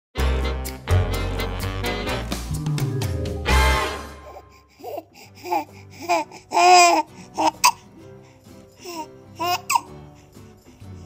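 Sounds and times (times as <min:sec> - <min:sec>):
swing music: 0:00.2 - 0:11.0
baby making squeaky sounds: 0:09.4 - 0:09.9.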